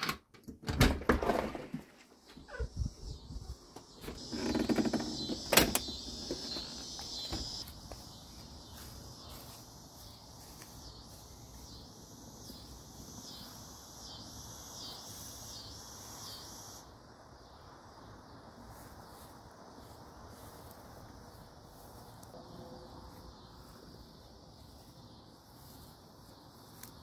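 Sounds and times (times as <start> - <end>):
faint insects buzzing: 1.8 - 27.0.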